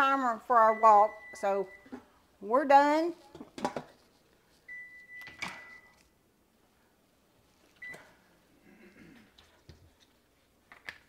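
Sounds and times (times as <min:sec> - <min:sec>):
kitchen timer beeping: 0:00.6 - 0:01.9, 0:04.7 - 0:06.0.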